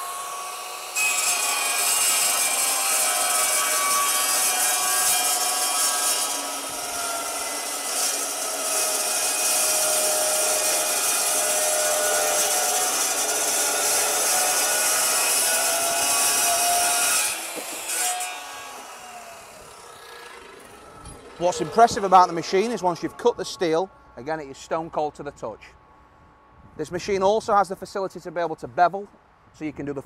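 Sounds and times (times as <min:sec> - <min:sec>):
chop saw cutting steel: 0:00.0 - 0:23.8.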